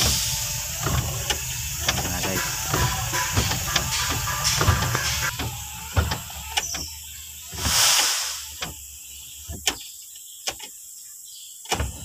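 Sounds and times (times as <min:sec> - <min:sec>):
hissing swoosh: 0:07.5 - 0:08.6.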